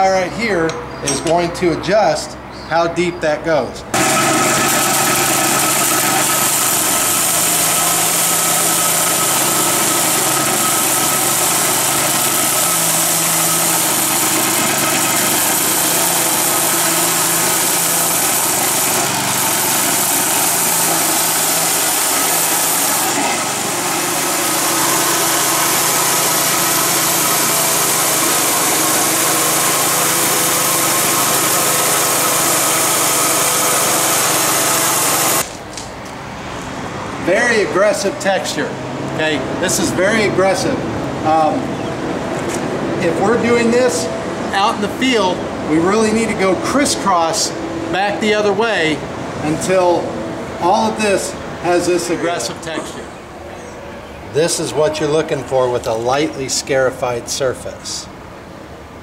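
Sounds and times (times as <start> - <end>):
concrete scarifier grinding: 3.9 - 35.6.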